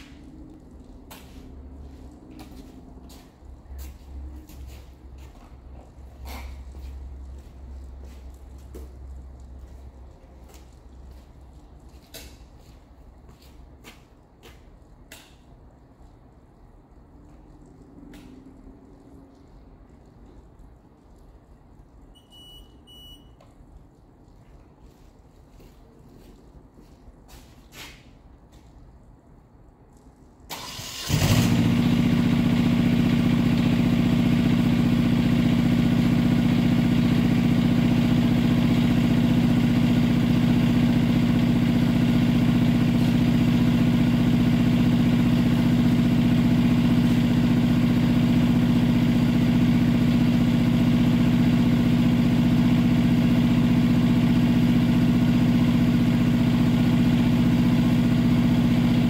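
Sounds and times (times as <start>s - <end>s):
engine starting and droning: 30.5s - 59.0s.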